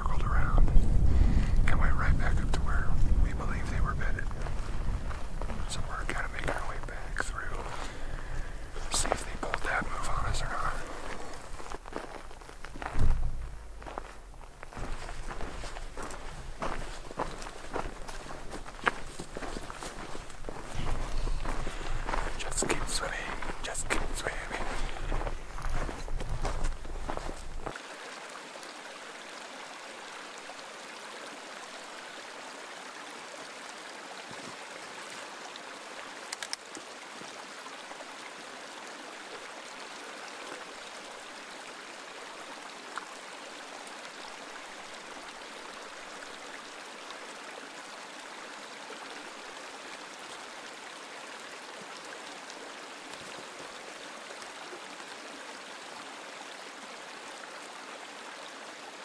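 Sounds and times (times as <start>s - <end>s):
mountain stream rushing: 0.0s - 59.0s
sharp clicks: 36.3s - 36.8s.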